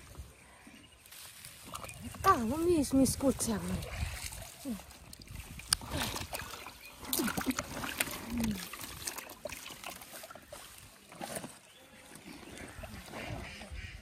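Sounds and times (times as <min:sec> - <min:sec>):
fish splashing in water: 0:03.8 - 0:13.9.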